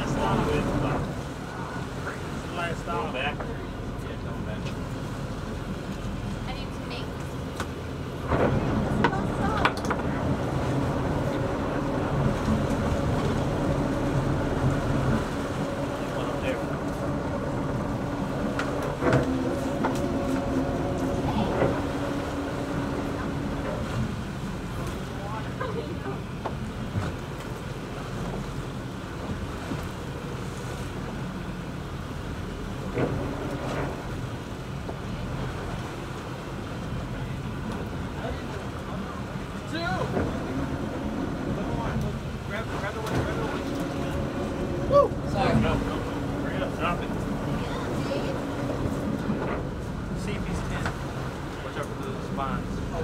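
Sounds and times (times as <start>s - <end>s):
boat engine running: 0.0s - 53.0s
water noise: 0.0s - 53.0s
waves: 0.0s - 53.0s
wind: 0.0s - 53.0s
wind buffeting microphone: 8.1s - 25.3s.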